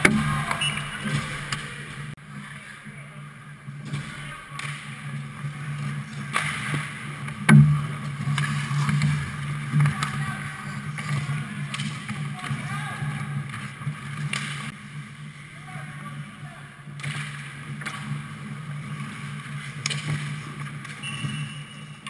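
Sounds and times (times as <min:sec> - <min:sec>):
skates scraping ice: 0:03.8 - 0:16.4, 0:17.0 - 0:22.0
sticks and puck clacking: 0:03.9 - 0:12.8, 0:13.4 - 0:14.8, 0:16.9 - 0:22.0.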